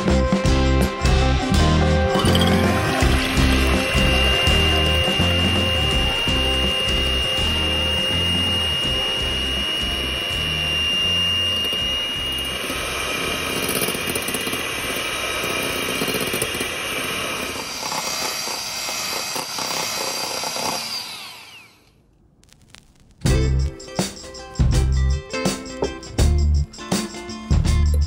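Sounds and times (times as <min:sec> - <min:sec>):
electric hand mixer running: 0:00.5 - 0:21.9
motor winding down whine: 0:02.1 - 0:21.9.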